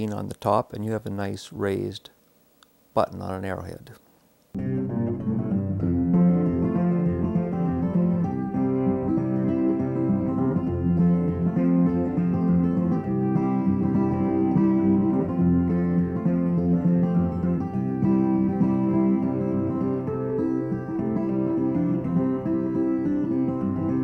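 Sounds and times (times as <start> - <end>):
guitar music: 4.6 - 24.0.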